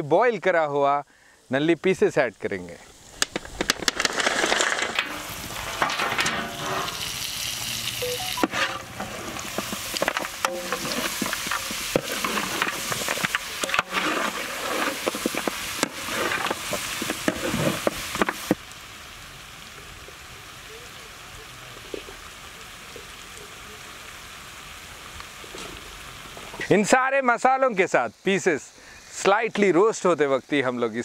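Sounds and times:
masala sizzling in pot: 1.1 - 31.0
metal spatula scraping pot: 4.9 - 7.3, 8.4 - 18.3.

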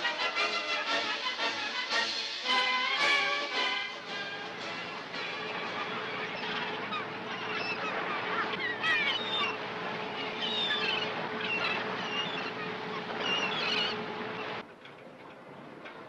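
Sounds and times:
gulls calling: 2.6 - 16.0
low hum: 3.6 - 15.7.

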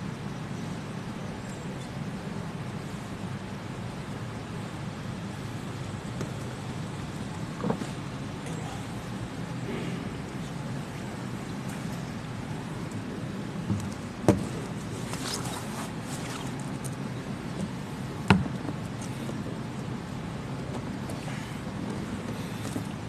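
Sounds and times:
low room hum: 0.0 - 23.0
sharp knocks: 18.3 - 18.6.

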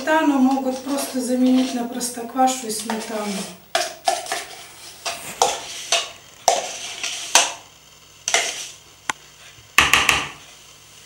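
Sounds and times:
metal spoon scraping plastic tub: 0.0 - 7.6, 8.2 - 8.8.

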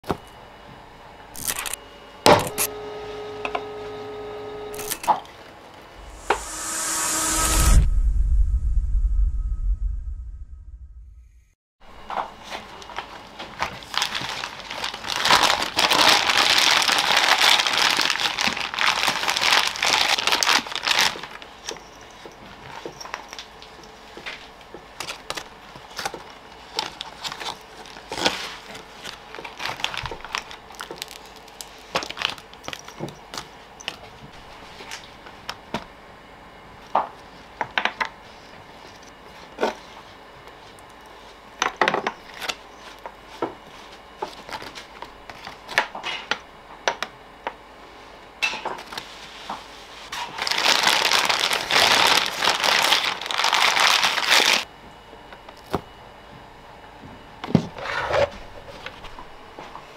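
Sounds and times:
plastic bag crinkling: 12.9 - 21.6, 26.6 - 32.9, 50.2 - 54.6.

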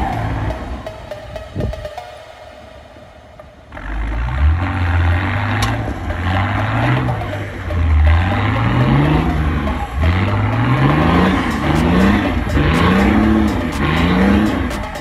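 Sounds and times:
engine revving hard: 3.7 - 15.0.

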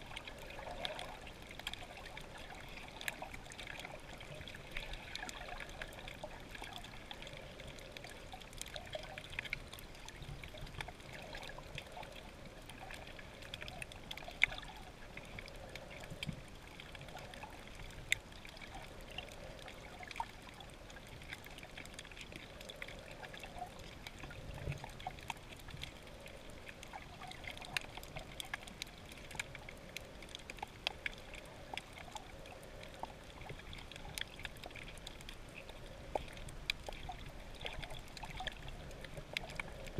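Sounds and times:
muffled underwater water hiss: 0.0 - 39.9.

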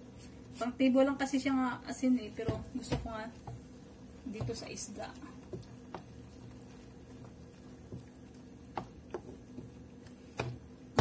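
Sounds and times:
faint steady hum: 0.0 - 11.0
wooden spoon stirring leaves: 0.1 - 10.6.

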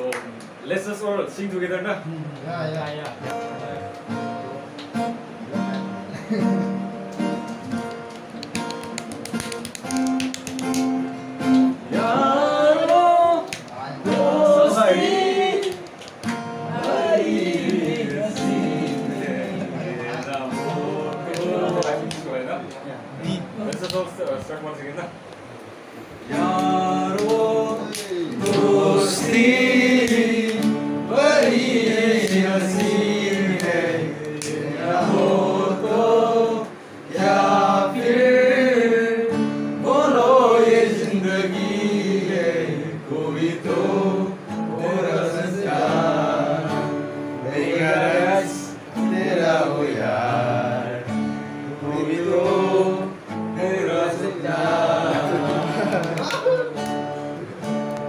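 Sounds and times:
strummed acoustic guitar: 3.2 - 22.4, 26.2 - 58.0
men singing: 11.8 - 16.0, 16.6 - 22.1, 26.2 - 56.6.

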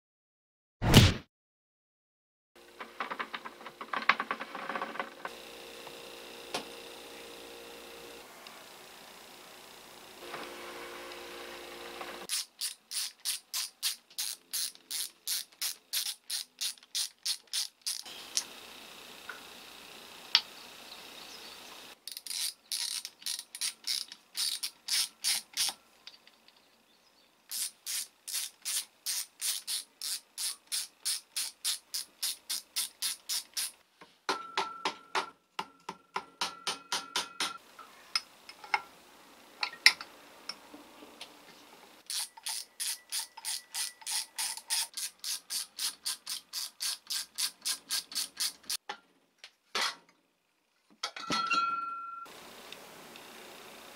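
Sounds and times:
hand tools knocking on metal: 34.3 - 37.6.

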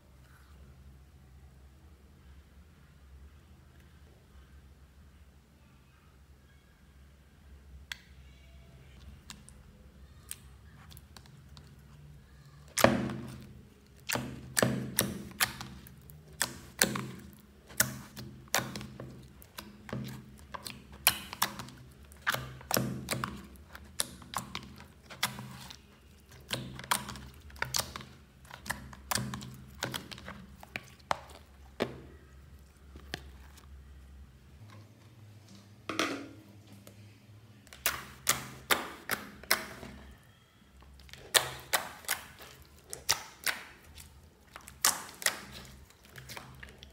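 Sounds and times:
wet sticky slime slaps: 12.8 - 31.9, 37.7 - 39.9, 41.1 - 46.9.

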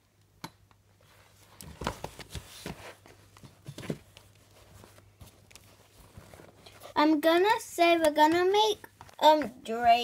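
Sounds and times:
soft knocks and thumps: 1.7 - 5.4.

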